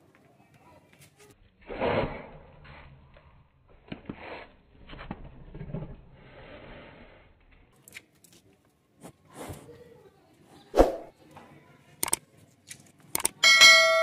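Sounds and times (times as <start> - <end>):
soft clicks: 12.0 - 12.2, 13.1 - 13.4.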